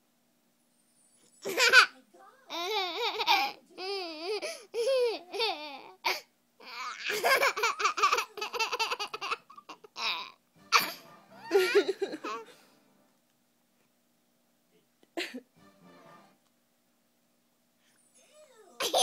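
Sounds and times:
baby laughing: 0:01.4 - 0:12.5, 0:18.8 - 0:19.0.

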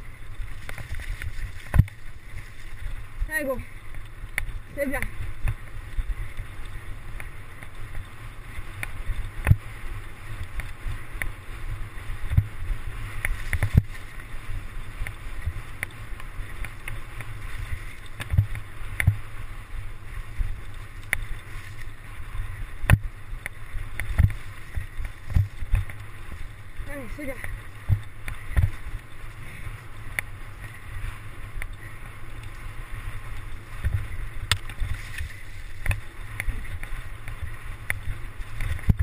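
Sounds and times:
bike knocks and rattles: 0:00.0 - 0:02.2, 0:16.6 - 0:19.2, 0:22.8 - 0:26.1, 0:27.8 - 0:28.8
bike rolling over grass: 0:00.0 - 0:39.0
wind rumbling on microphone: 0:00.0 - 0:39.0.

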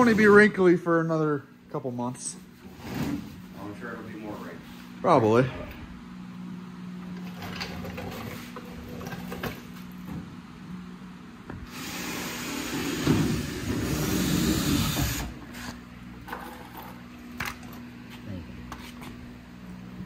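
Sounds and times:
cordless drill drilling metal: 0:11.7 - 0:15.7.

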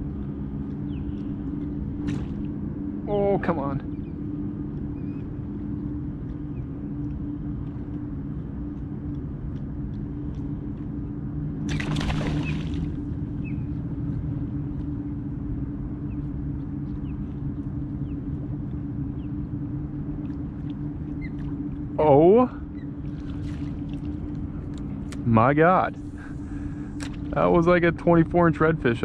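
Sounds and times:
steady low hum: 0:00.0 - 0:29.0
fish splashing in water: 0:11.7 - 0:13.0.

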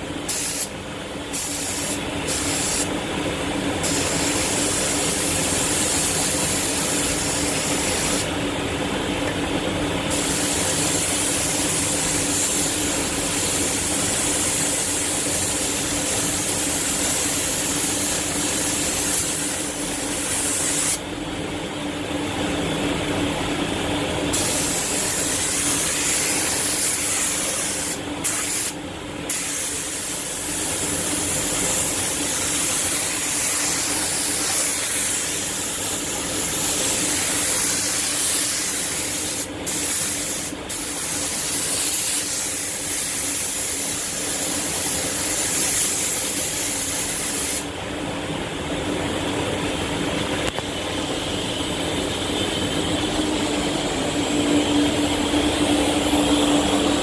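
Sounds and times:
steady low hum: 0:00.0 - 0:57.0
spray gun hissing: 0:00.3 - 0:00.7, 0:01.3 - 0:02.9, 0:03.8 - 0:08.3, 0:10.1 - 0:21.0, 0:24.3 - 0:47.7.

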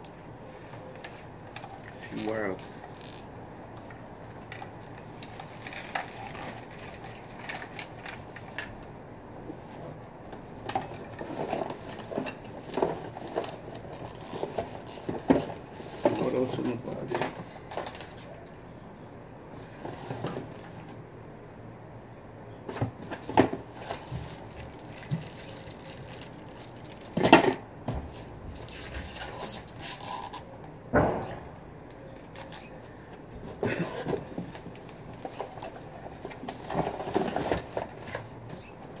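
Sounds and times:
plastic and cardboard rustling: 0:00.5 - 0:08.7, 0:10.9 - 0:18.4, 0:22.7 - 0:27.2, 0:32.2 - 0:39.0
sharp knocks: 0:30.9 - 0:31.6.

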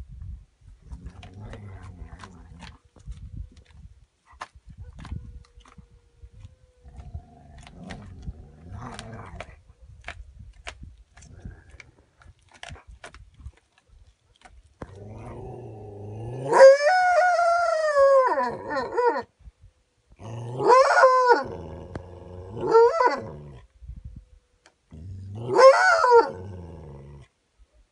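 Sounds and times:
coyote growling and yelping: 0:00.8 - 0:03.0, 0:04.9 - 0:09.9, 0:14.8 - 0:19.3, 0:20.2 - 0:23.7, 0:24.9 - 0:27.3.

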